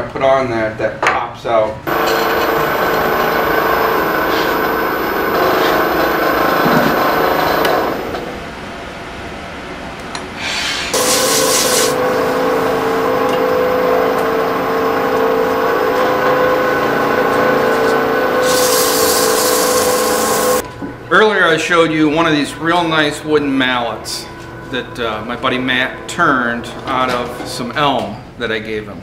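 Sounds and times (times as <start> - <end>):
wood lathe motor whine: 1.9 - 8.3, 10.9 - 20.6
hands rubbing spinning wood: 10.7 - 12.0
turning tool scraping wood: 10.7 - 12.0, 17.2 - 20.6.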